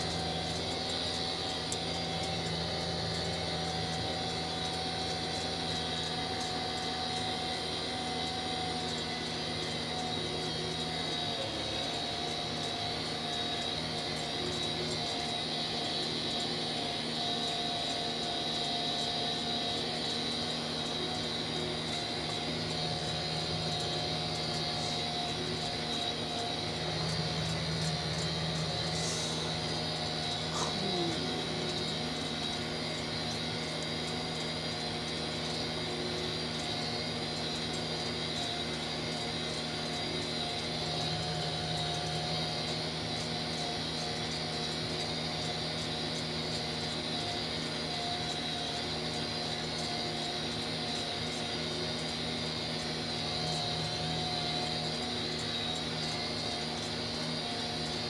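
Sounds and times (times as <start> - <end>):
tractor engine droning: 19.8 - 34.8.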